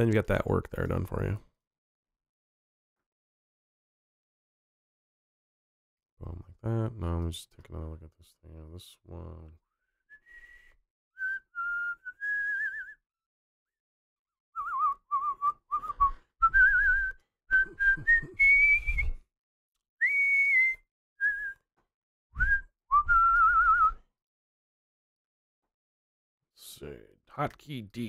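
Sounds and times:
man whistling a tune: 9.9 - 13.0, 14.6 - 19.3, 20.0 - 21.7, 22.4 - 24.1.

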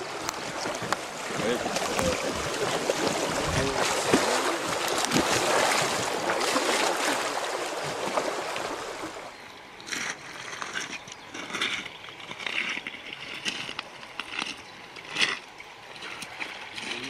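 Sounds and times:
fish thrashing and splashing: 0.0 - 9.2
rushing river water: 0.0 - 17.0.

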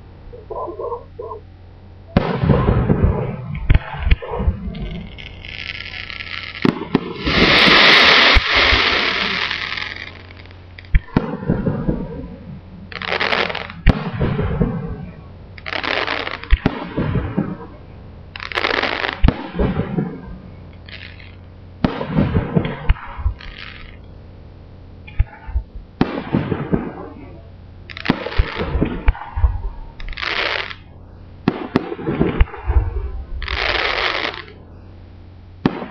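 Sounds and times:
hissing crackle of fireworks: 2.1 - 24.0, 26.0 - 34.6, 35.6 - 35.9
firework shells bursting: 2.2 - 17.7, 18.3 - 24.0, 27.9 - 32.6, 33.4 - 34.6.

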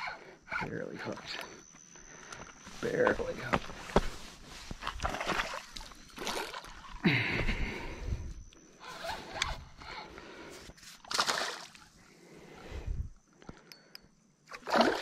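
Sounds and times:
fish splashing in water: 11.0 - 11.8.

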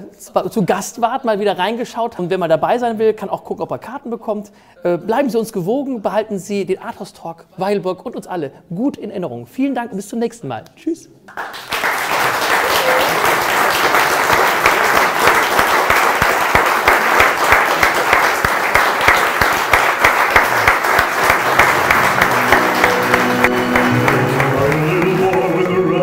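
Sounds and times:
audience applauding: 11.3 - 26.0
music: 21.4 - 26.0.

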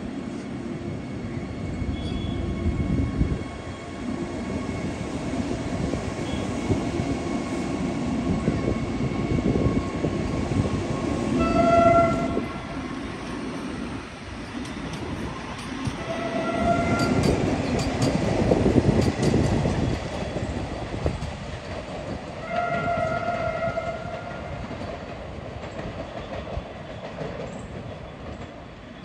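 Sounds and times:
train wheels rumbling: 0.0 - 29.0
train horn: 1.9 - 2.5, 6.2 - 6.6, 11.4 - 12.8, 16.0 - 17.4, 22.4 - 24.5.

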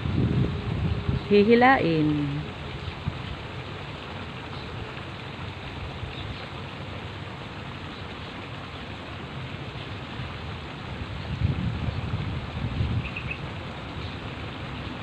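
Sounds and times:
river water flowing: 0.0 - 15.0
wind: 0.0 - 15.0.

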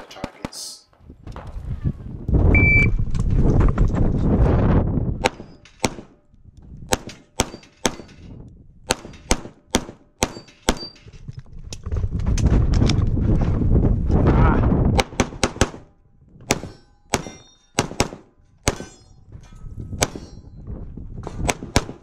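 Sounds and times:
wind buffeting microphone: 1.0 - 7.2, 7.9 - 9.5, 11.0 - 16.8, 18.7 - 22.0
short high beep: 2.6 - 2.9
pistol shots: 6.9 - 8.2, 8.9 - 11.0, 16.5 - 19.0, 21.4 - 22.0.

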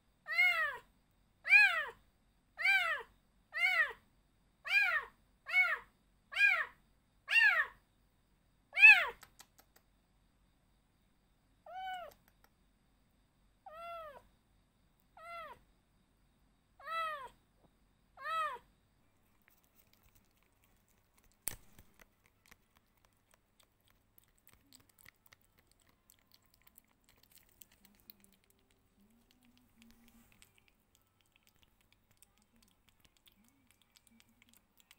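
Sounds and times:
kitten meowing: 11.7 - 12.1, 13.7 - 14.2, 15.2 - 15.6, 16.8 - 17.3, 18.2 - 18.6
sharp click: 21.3 - 22.1.

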